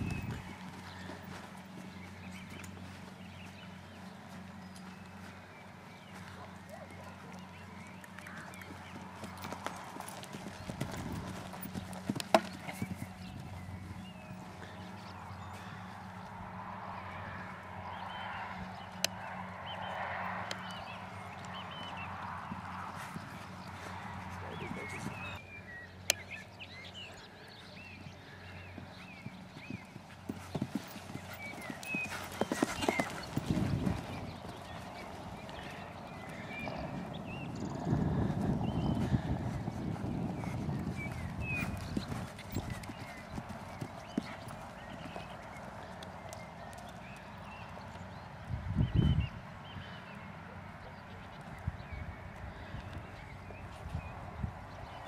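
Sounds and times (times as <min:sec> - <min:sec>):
hooves thudding on sand: 0:00.0 - 0:25.4, 0:26.0 - 0:48.3, 0:51.2 - 0:55.0.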